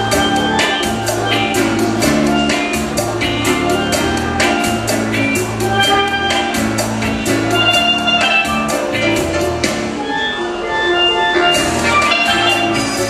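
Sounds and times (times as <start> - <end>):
drums with steady beat: 0.0 - 10.1, 11.5 - 13.0
bass line: 0.0 - 10.2, 11.3 - 13.0
steel pan melody: 0.0 - 13.0.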